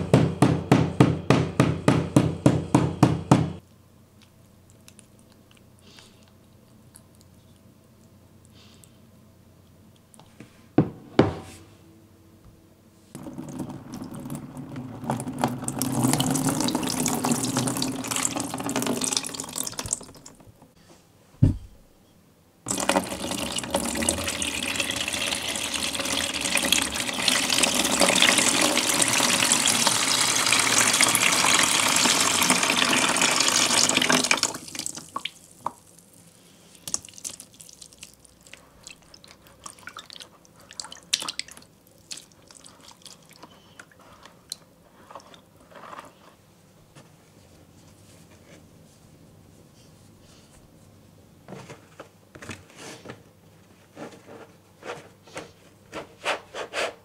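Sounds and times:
water pouring into plastic tub: 13.2s - 20.4s, 22.7s - 36.0s
thump: 21.4s - 21.8s.

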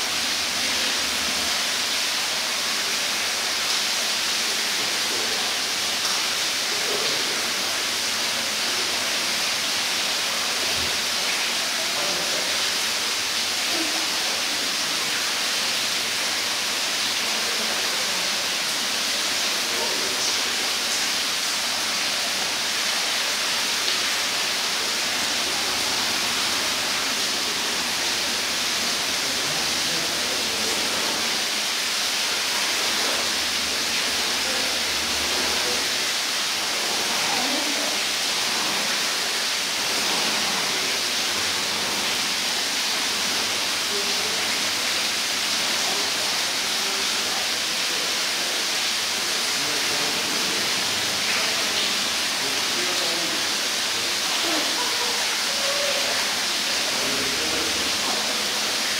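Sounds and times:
steady rushing hiss: 0.0s - 58.9s
faint voices: 24.4s - 31.7s, 32.7s - 36.2s, 36.8s - 41.8s, 43.8s - 58.9s.

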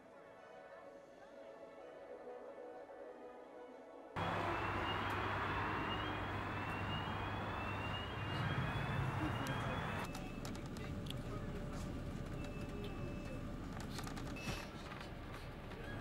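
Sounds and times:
faint music: 0.0s - 16.0s
vehicle engine low hum: 4.2s - 16.0s.

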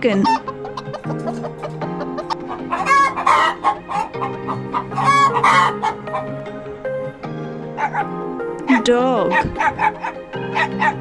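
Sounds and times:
chickens clucking: 0.0s - 6.6s, 7.8s - 8.1s, 9.2s - 11.0s
background music: 0.0s - 11.0s
loud chicken calls: 0.2s - 6.4s, 9.3s - 11.0s.

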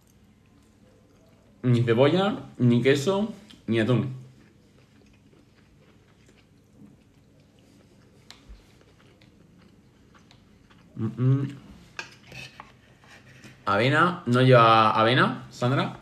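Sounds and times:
person chewing food: 3.4s - 11.2s.

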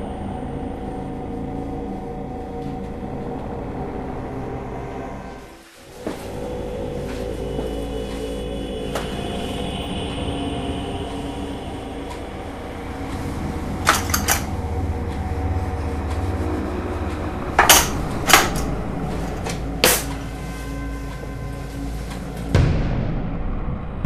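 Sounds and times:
low steady drone: 0.0s - 24.0s
metal knives clinking: 13.9s - 14.5s.

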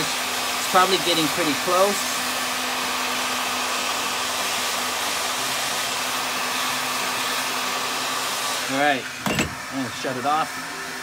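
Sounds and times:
hot-air welding gun blowing: 0.0s - 11.0s.

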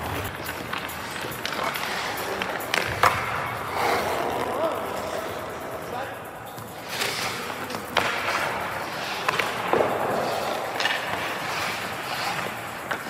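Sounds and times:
hockey stick clacking puck: 0.0s - 13.0s
skate blades scraping ice: 0.0s - 13.0s.

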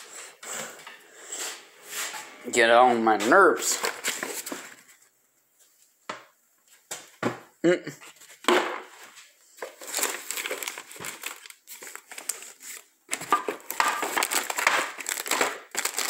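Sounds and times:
crinkling of rummaging by hand: 3.4s - 5.9s, 8.0s - 16.0s.

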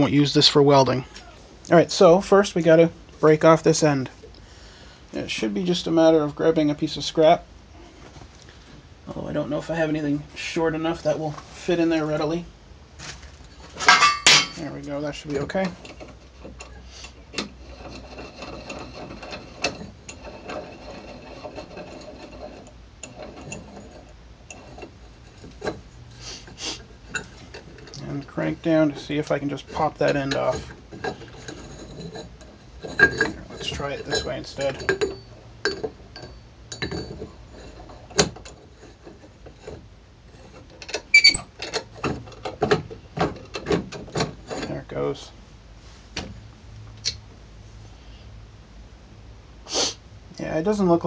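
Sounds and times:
steel tubing rattling and scraping: 13.4s - 45.3s
sharp metal clinks and knocks: 32.9s - 37.3s.

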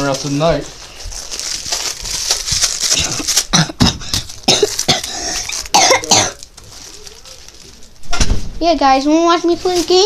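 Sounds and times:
rustling and crinkling: 0.0s - 10.0s.

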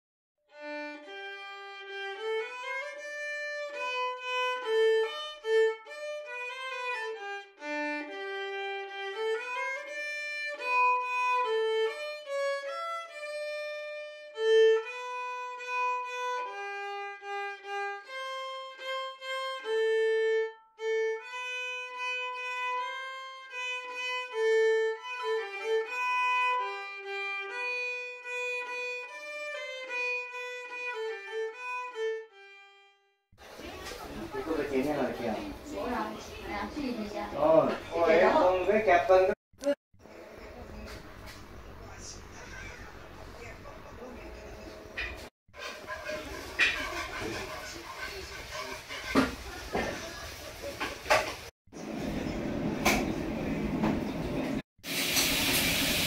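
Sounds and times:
solo instrumental melody: 0.5s - 39.3s.

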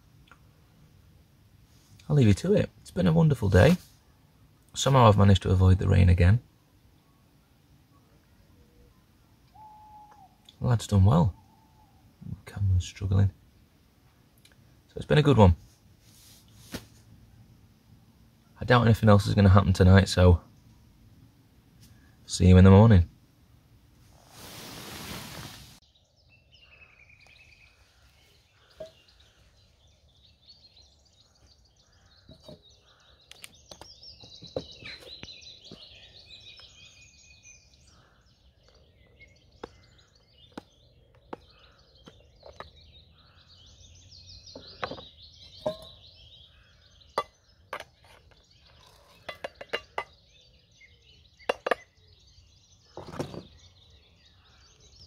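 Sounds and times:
birds singing: 0.0s - 23.7s, 25.8s - 55.0s
bowl and tubs clinking on table: 44.6s - 46.0s, 51.5s - 51.9s.

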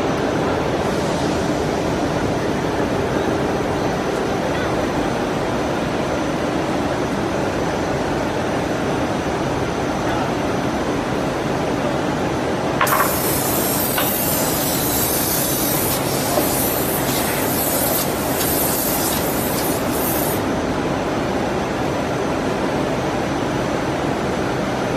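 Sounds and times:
compressed air hissing: 12.8s - 20.5s.

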